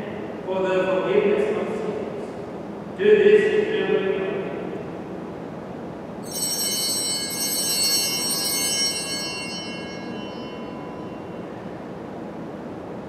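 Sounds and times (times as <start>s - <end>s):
altar bells ringing: 6.2s - 12.2s.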